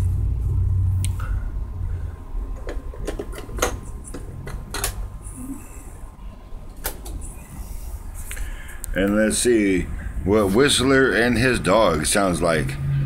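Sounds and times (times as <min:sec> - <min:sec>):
low rumble: 0:00.0 - 0:02.6
cassette clicking and rattling: 0:02.6 - 0:05.0.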